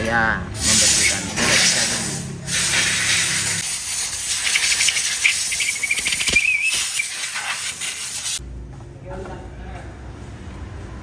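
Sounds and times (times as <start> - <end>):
air blow gun hissing: 0.6 - 8.4.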